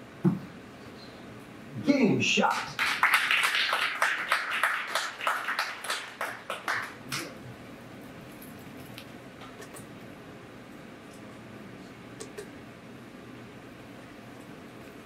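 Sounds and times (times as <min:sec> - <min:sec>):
audience clapping: 0:02.4 - 0:07.4.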